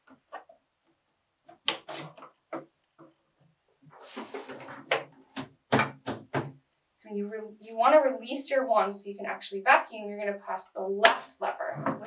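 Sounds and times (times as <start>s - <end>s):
rustling scrape: 3.9s - 4.9s
plastic knocks and clicks: 4.6s - 6.6s.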